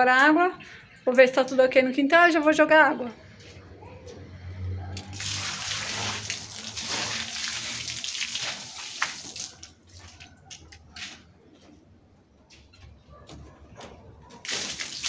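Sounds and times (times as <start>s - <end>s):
water pouring and splashing: 5.0s - 10.1s, 14.4s - 15.0s.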